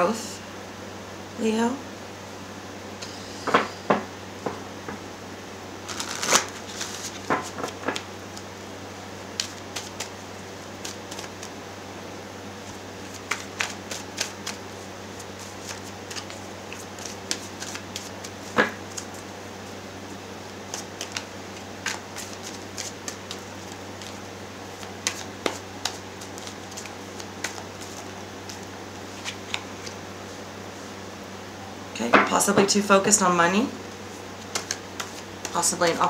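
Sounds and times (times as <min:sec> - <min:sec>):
cards being shuffled: 0:05.9 - 0:08.5, 0:09.3 - 0:11.6, 0:12.6 - 0:19.2, 0:20.6 - 0:30.0, 0:34.4 - 0:35.8.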